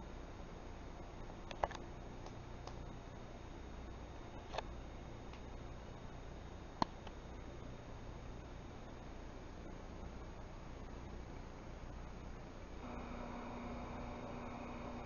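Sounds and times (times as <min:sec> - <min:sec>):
low steady hum and hiss: 0:00.0 - 0:15.0.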